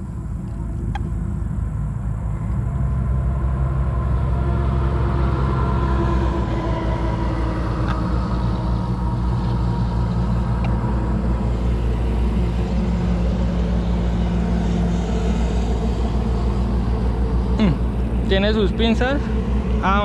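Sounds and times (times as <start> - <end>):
engine running steadily: 0.0 - 20.0
faint ticks: 9.4 - 10.8.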